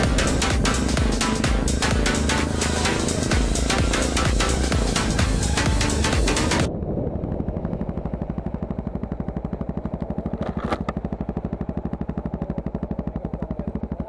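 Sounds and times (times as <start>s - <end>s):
motorcycle engine thumping: 7.5s - 14.0s.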